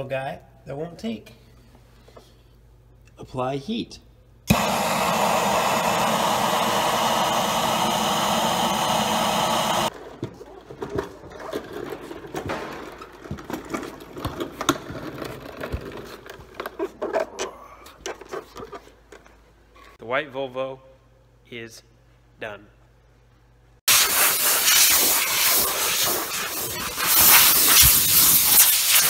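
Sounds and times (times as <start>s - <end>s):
heat gun blowing: 4.5s - 9.9s, 23.9s - 29.0s.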